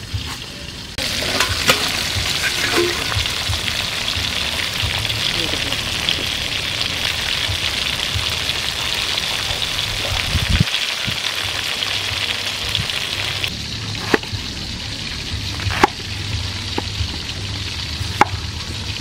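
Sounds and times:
fish sizzling in hot oil: 0:00.0 - 0:19.0
cleaver striking chopping block: 0:14.0 - 0:14.2.

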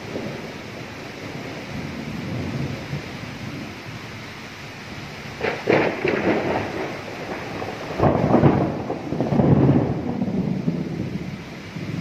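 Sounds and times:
steady rain: 0:00.0 - 0:12.0
thunder rumbling: 0:00.0 - 0:12.0.

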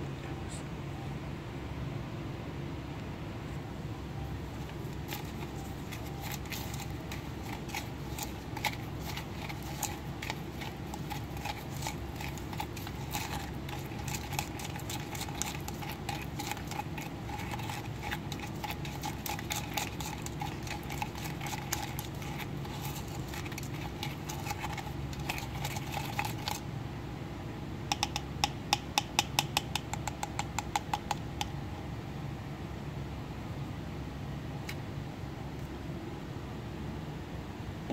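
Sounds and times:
steady background hum: 0:00.0 - 0:37.9
plastic spoon stirring in a cup: 0:04.3 - 0:26.7, 0:27.9 - 0:31.3.

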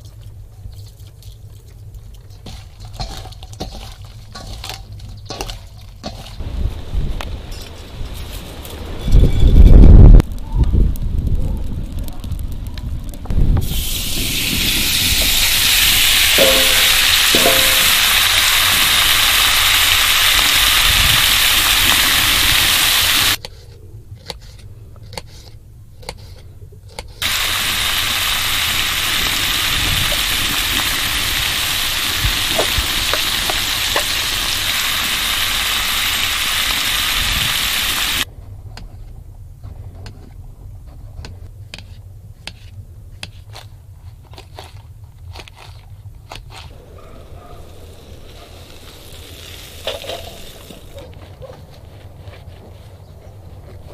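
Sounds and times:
food sizzling in hot oil: 0:13.6 - 0:23.4, 0:27.2 - 0:38.3, 0:47.6 - 0:51.0.

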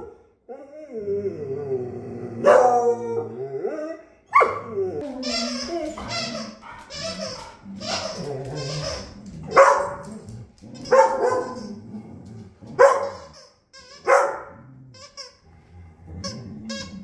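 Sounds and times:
dog barking: 0:02.4 - 0:02.8, 0:04.3 - 0:04.7, 0:09.5 - 0:10.1, 0:10.9 - 0:11.6, 0:12.8 - 0:13.3, 0:14.0 - 0:14.6.

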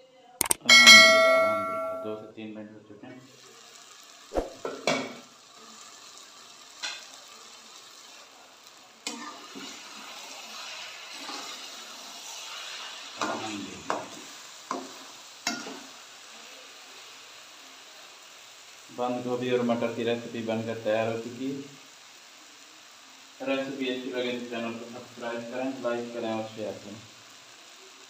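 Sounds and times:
vegetables sizzling in a pot: 0:01.0 - 0:28.0.

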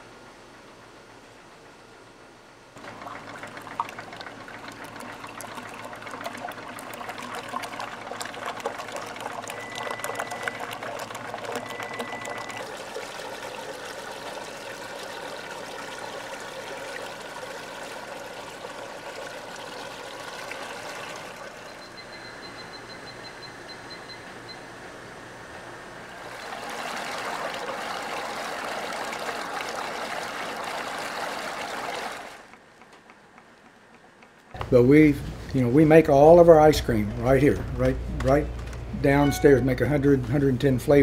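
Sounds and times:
liquid pouring and splashing: 0:02.8 - 0:21.7, 0:26.2 - 0:32.4.

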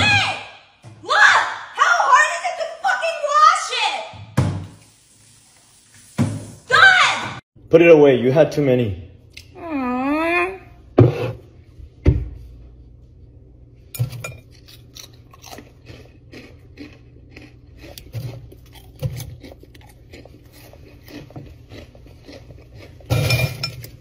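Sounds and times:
snacks crunching: 0:14.4 - 0:23.2.

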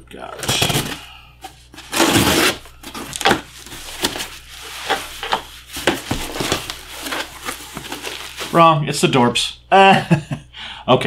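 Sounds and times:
bubble wrap rustling and crackling: 0:01.8 - 0:08.7.

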